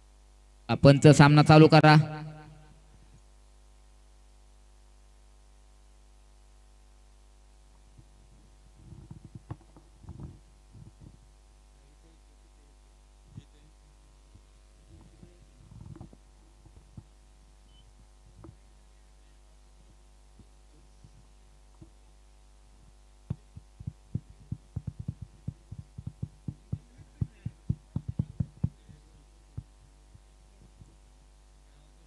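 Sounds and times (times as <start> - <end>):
electrical hum: 0.0 - 32.0
soft low thumps and knocks: 7.9 - 11.2, 23.2 - 31.0.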